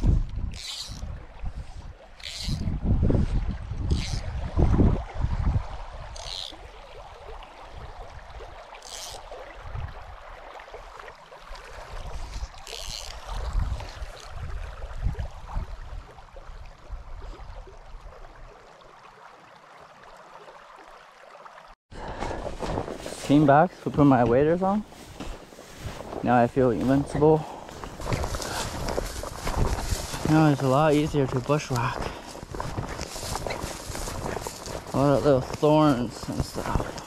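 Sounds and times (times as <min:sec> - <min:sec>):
wind buffeting microphone: 0:00.0 - 0:06.7, 0:11.8 - 0:17.6, 0:24.2 - 0:37.0.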